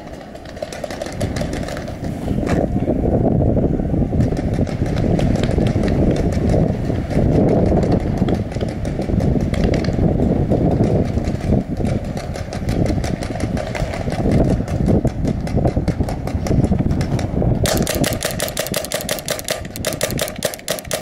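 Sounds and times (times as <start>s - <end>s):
paintball marker firing: 17.6s - 21.0s.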